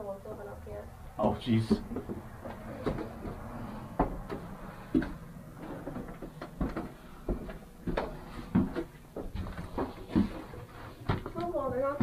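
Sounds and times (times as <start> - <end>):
footsteps on wooden stairs: 1.2 - 12.0.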